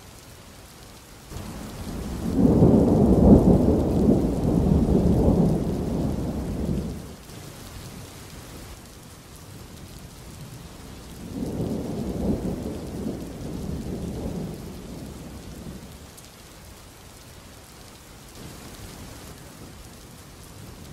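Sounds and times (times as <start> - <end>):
rain hissing: 0.0 - 20.9
rolling thunder: 1.3 - 7.2, 11.2 - 16.0.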